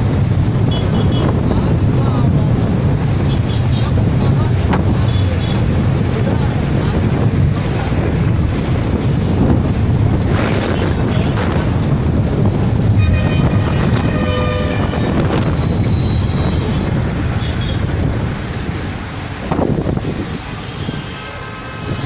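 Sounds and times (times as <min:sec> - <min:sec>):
traffic rumble: 0:00.0 - 0:22.0
wind on microphone: 0:00.0 - 0:22.0
vehicle horn blasts: 0:12.9 - 0:17.8.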